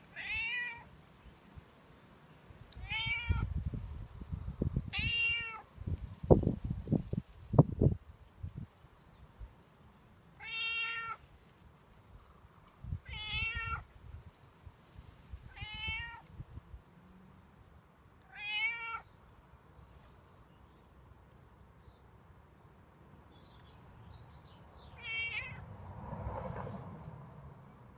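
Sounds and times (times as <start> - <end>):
cat meowing: 0.1 - 0.9, 2.8 - 3.6, 4.9 - 5.6, 10.4 - 11.2, 13.0 - 13.9, 15.5 - 16.3, 18.3 - 19.1, 25.0 - 25.7.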